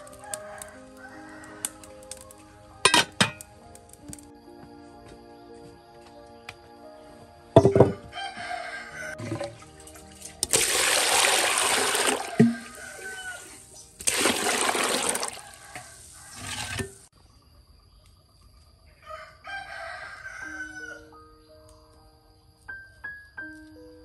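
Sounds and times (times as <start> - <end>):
rooster crowing: 0.0 - 2.3, 7.7 - 9.2, 11.6 - 13.7, 15.0 - 16.8, 19.0 - 21.2
water pouring into clay basin: 9.2 - 17.1.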